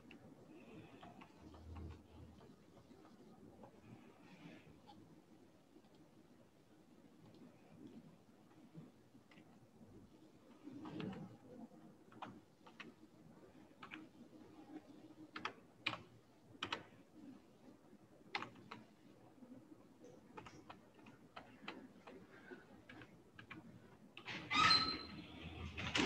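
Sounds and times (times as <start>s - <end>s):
faint keyboard keystrokes: 10.5s - 11.5s, 12.1s - 13.0s, 14.8s - 17.0s, 18.3s - 19.0s, 20.0s - 24.5s.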